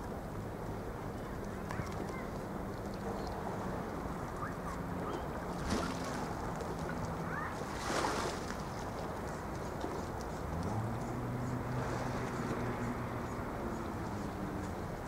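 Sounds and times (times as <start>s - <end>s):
faint low ship engine hum: 0.0s - 15.0s
water splashes: 1.5s - 15.0s
sea waves washing against shore: 3.4s - 15.0s.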